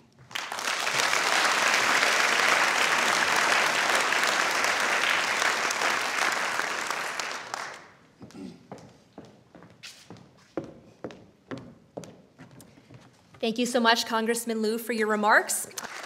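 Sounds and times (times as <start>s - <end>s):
audience applauding: 0.0s - 8.0s, 15.8s - 16.0s.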